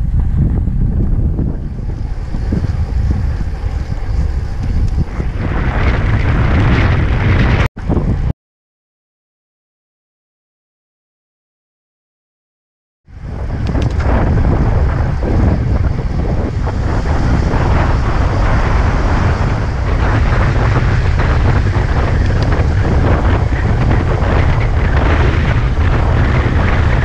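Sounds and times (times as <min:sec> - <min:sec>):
wind buffeting microphone: 0:00.0 - 0:08.3, 0:13.1 - 0:27.0.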